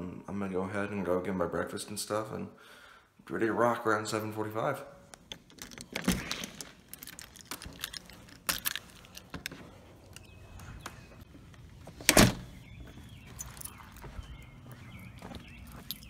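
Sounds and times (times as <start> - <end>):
door unlatched and opened: 5.2 - 9.5, 12.0 - 12.5
keys jangling: 5.3 - 10.4, 13.3 - 14.1, 15.5 - 16.0.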